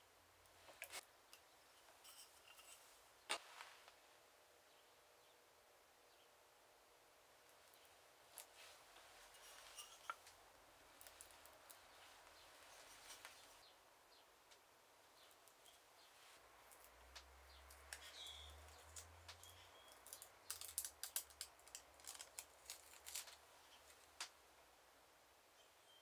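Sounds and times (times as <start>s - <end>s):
foil crackling as it is peeled: 17.9s - 23.4s.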